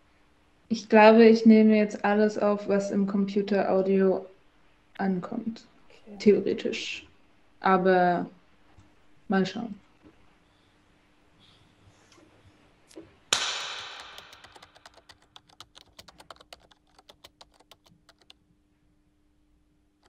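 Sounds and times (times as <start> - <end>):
typing on laptop keyboard: 13.8 - 18.4.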